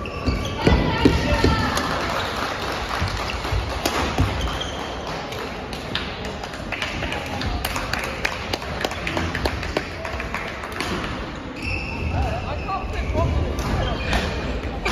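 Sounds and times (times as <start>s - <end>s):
busy hall background noise: 0.0s - 14.9s
rackets hitting shuttlecocks: 3.8s - 4.7s.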